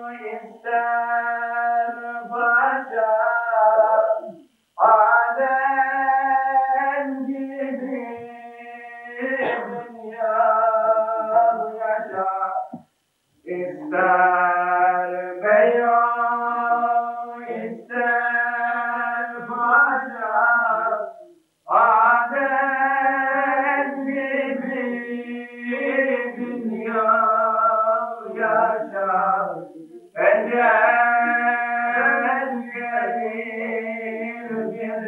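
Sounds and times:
man singing a hymn: 0:00.0 - 0:12.8, 0:13.4 - 0:35.0.

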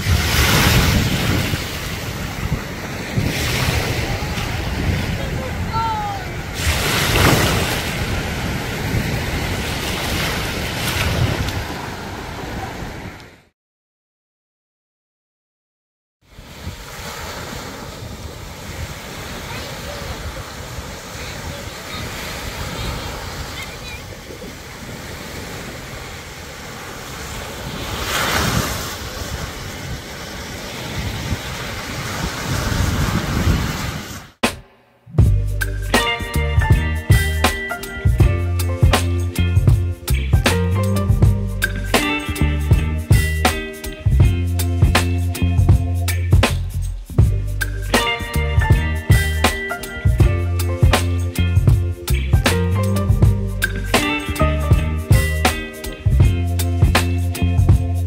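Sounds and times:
small waves washing: 0:00.0 - 0:13.2, 0:16.3 - 0:34.4
wind buffeting microphone: 0:00.0 - 0:13.2, 0:16.4 - 0:26.4, 0:27.2 - 0:34.2.

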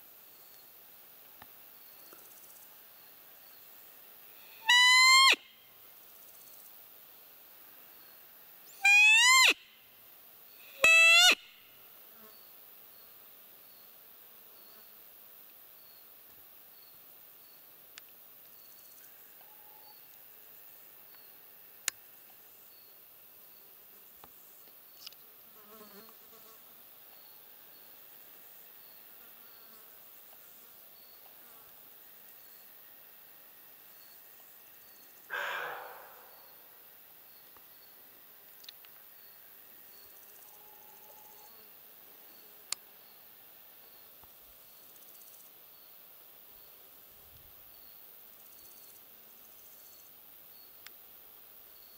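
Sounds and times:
deer call high piping note: 0:04.4 - 0:05.5, 0:08.8 - 0:09.6, 0:10.6 - 0:11.4, 0:35.3 - 0:36.4
faint high ticks: 0:17.9 - 0:20.2, 0:50.8 - 0:51.0.

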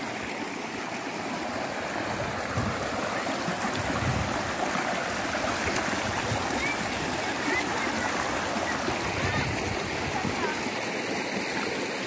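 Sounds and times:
stream water rushing over rocks: 0:00.0 - 0:12.0.

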